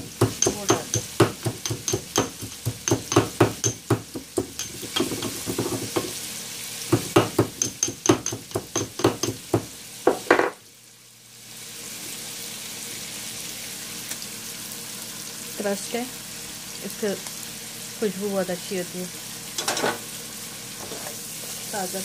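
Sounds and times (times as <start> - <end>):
garlic being pounded: 0.0 - 6.2, 6.9 - 10.4
oil sizzling in a pan: 0.0 - 22.0.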